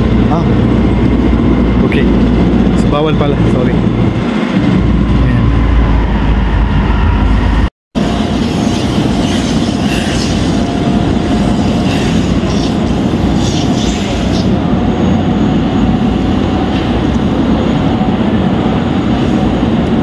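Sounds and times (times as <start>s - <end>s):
rumbling hall background noise: 0.0s - 7.5s.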